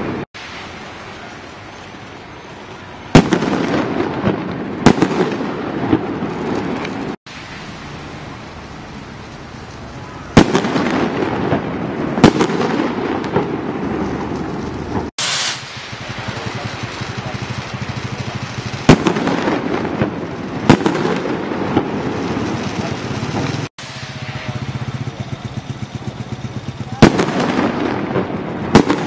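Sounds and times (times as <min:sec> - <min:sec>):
firework bangs: 0:00.0 - 0:29.0
firework crackling: 0:00.0 - 0:29.0
firework launch whoosh: 0:03.2 - 0:25.1.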